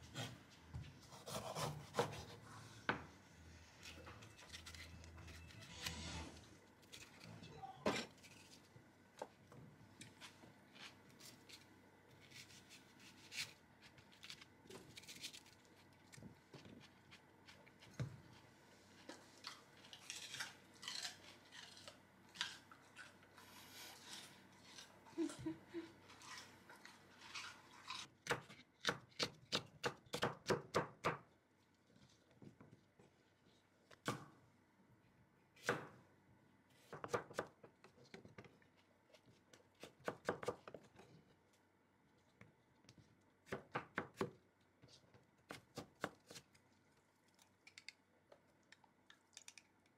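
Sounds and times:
knife chopping on wooden board: 1.3s - 2.3s.

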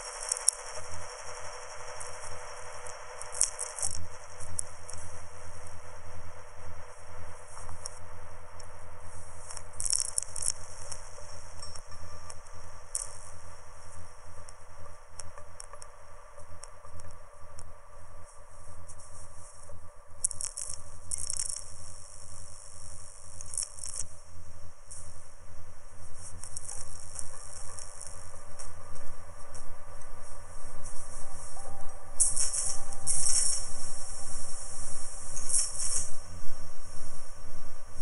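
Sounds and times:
crackling with quick clicks: 0.0s - 38.0s
bursts of high hiss: 32.2s - 36.4s.

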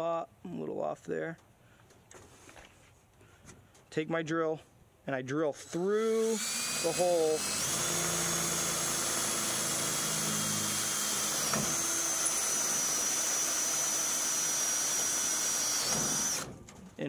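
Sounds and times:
cordless drill whining: 5.6s - 16.5s.

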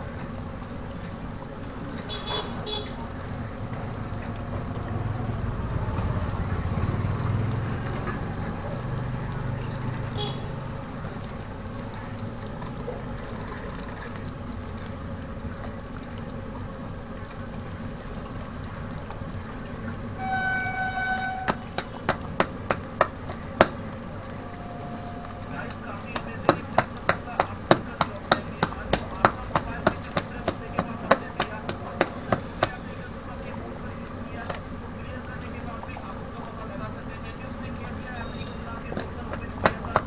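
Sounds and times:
food bubbling in frying oil: 0.0s - 40.0s
short horn-like beep: 2.1s - 3.0s, 10.2s - 10.7s, 20.2s - 21.6s, 24.4s - 25.5s, 38.2s - 38.6s
batter squelching in metal bowl: 21.4s - 34.6s.

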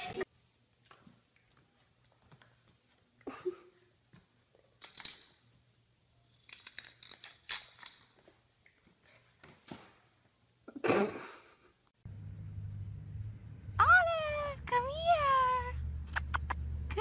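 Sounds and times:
puppy claws scrambling on tiles: 6.3s - 10.0s.

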